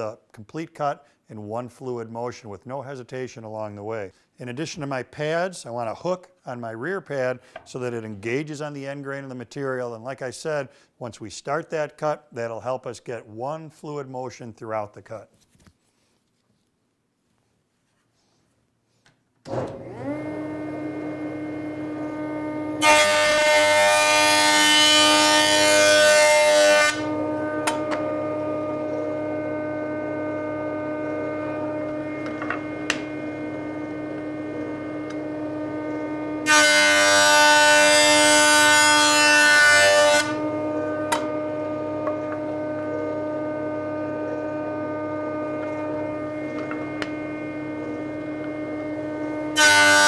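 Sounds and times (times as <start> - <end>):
jointer motor whine and hum: 19.4 - 50.0
planing wood noise: 19.6 - 50.0.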